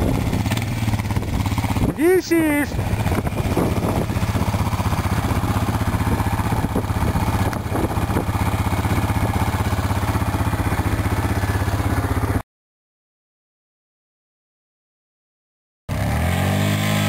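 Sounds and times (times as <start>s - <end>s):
quad engine chugging: 0.0s - 12.4s, 15.9s - 17.0s.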